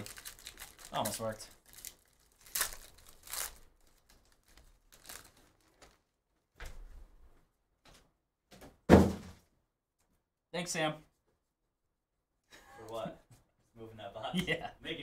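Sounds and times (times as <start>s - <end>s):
foil wrapper crinkling and tearing: 0.0s - 6.0s
cards rustling: 0.0s - 6.1s.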